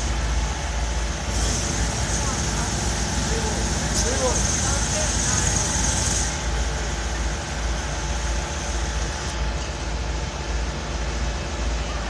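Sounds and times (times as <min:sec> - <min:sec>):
street noise: 0:00.0 - 0:12.0
vehicle engines rumbling: 0:00.0 - 0:12.0.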